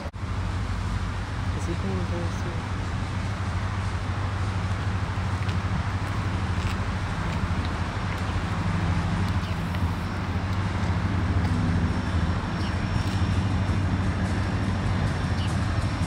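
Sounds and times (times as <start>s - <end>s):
diesel locomotive engine drone: 0.0s - 16.0s.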